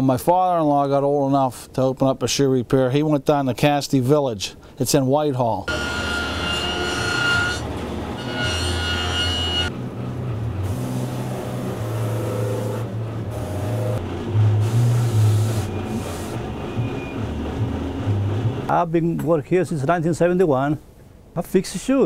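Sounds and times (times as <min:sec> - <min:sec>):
workshop machine humming: 0:05.7 - 0:18.7
high whine: 0:09.1 - 0:18.7.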